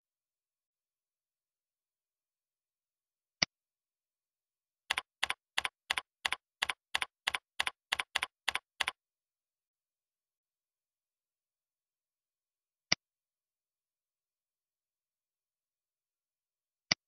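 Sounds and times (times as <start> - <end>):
computer keyboard typing: 4.9 - 9.0.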